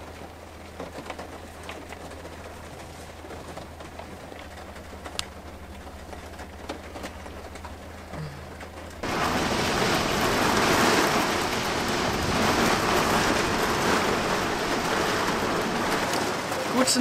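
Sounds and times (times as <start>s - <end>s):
heavy rain pouring: 0.0s - 17.0s
faint clicks: 1.1s - 5.4s.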